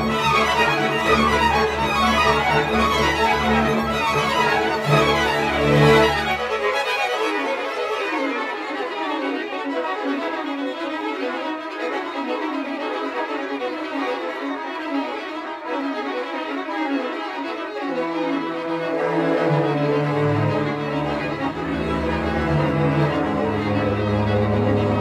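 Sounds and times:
string ensemble quick notes: 18.2 - 25.0.

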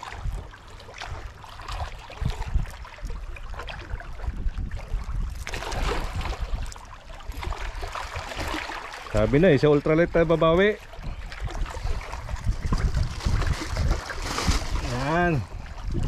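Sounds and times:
wind rumbling on microphone: 0.0 - 16.0
water washing against rocks: 5.4 - 16.0.

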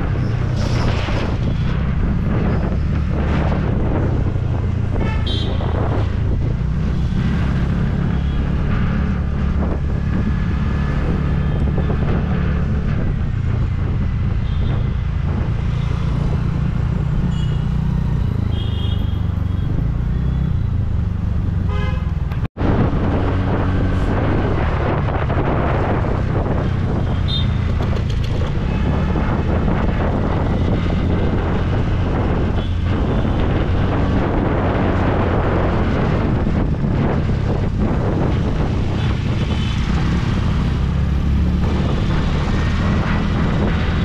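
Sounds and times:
city traffic: 0.0 - 44.0
wind rumble on microphone: 0.0 - 44.0
vehicle horns honking: 4.9 - 5.8, 17.3 - 17.8, 18.4 - 19.7, 21.7 - 22.2, 27.1 - 27.6.

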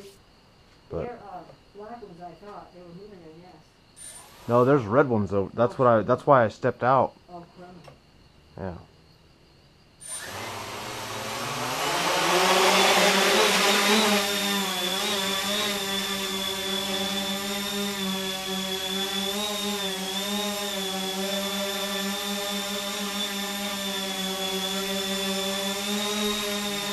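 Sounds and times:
drone motors whining: 4.0 - 5.0, 10.0 - 26.9.

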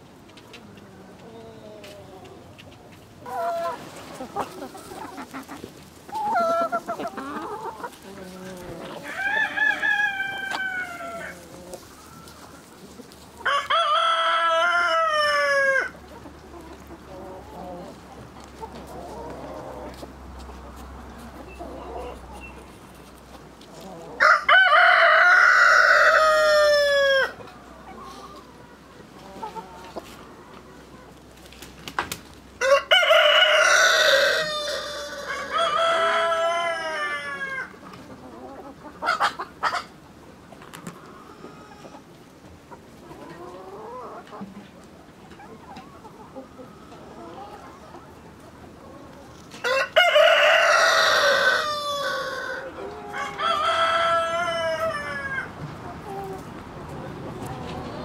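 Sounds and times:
hens clucking: 0.3 - 58.0
roosters crowing: 3.2 - 16.0, 23.8 - 28.2, 32.5 - 37.9, 49.3 - 56.3.

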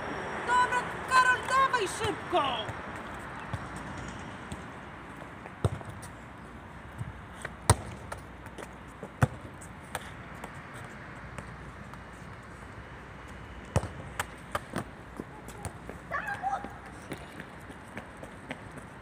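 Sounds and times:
steady background noise: 0.0 - 19.0
football thudding on stone paving: 5.4 - 6.1, 7.0 - 10.1, 13.7 - 14.9.

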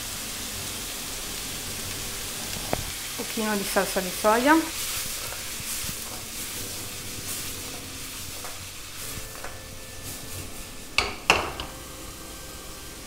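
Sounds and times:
food sizzling in a wok: 0.0 - 13.0
wok knocking: 10.9 - 11.9.

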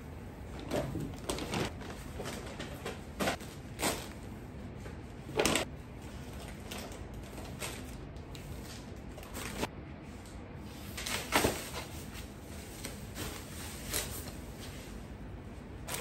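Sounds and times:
plastic bag rustling: 0.5 - 4.3, 10.9 - 15.1.

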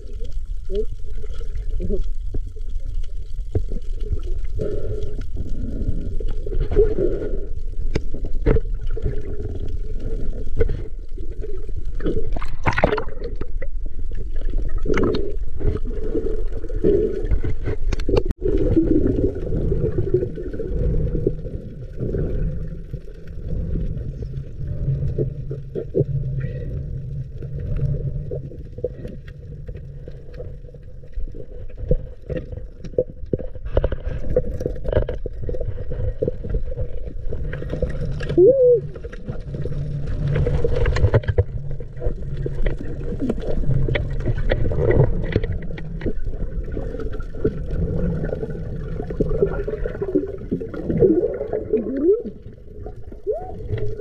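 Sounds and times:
underwater gurgling and bubbling: 0.0 - 54.0.

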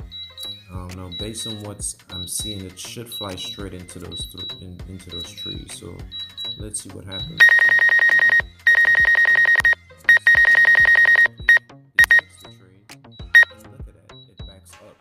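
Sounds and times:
rapid high-pitched warning beeps: 0.0 - 12.4, 13.2 - 14.7.

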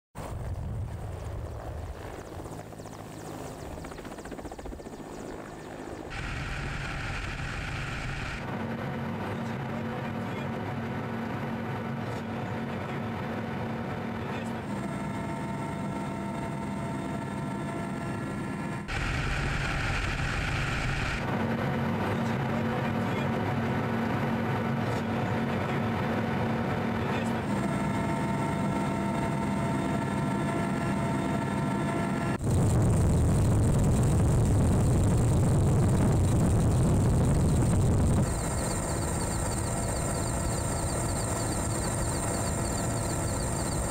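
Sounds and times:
helicopter rotor drone: 0.2 - 43.9
helicopter whine: 0.2 - 43.9.

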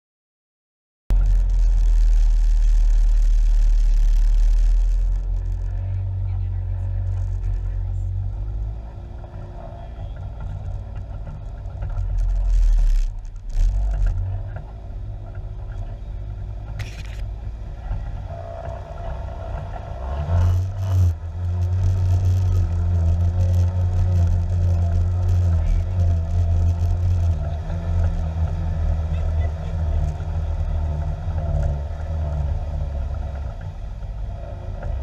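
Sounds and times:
utility vehicle engine running: 1.1 - 35.0
scraping against vehicle: 6.8 - 16.0, 16.6 - 35.0.

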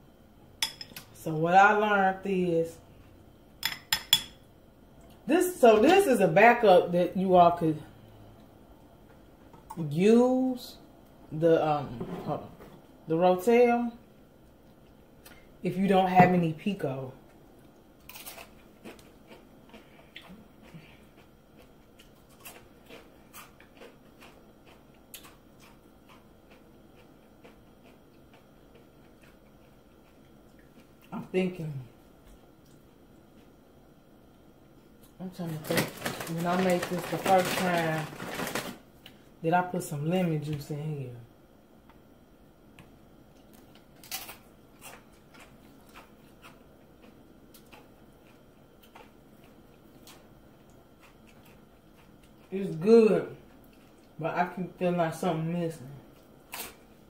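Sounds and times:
chip crunching while chewed: 17.6 - 31.1, 35.4 - 39.2, 43.3 - 52.5.

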